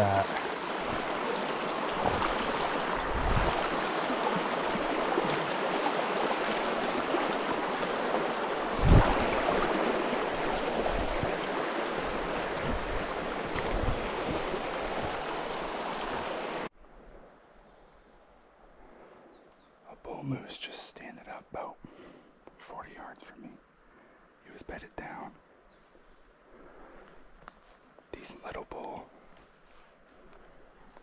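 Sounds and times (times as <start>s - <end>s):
stream flowing: 0.0s - 16.7s.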